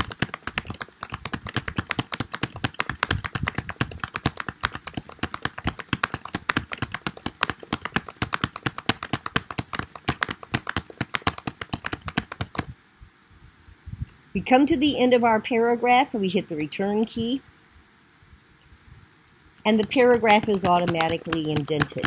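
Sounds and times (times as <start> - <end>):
typing on computer keyboard: 0.0 - 12.7, 19.6 - 22.0.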